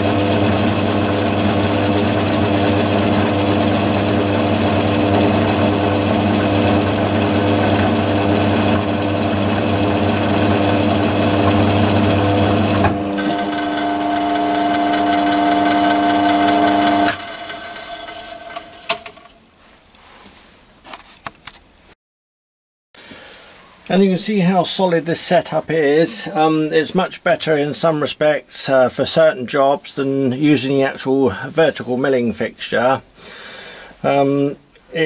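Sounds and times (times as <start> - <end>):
lathe machine hum: 0.0 - 19.0
lathe winding down: 0.0 - 19.3.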